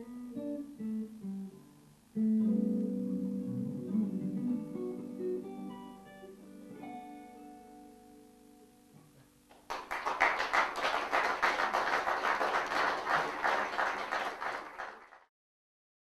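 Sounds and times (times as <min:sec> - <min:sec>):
guitar chord ringing: 0:00.1 - 0:09.2
audience applause: 0:09.5 - 0:15.3.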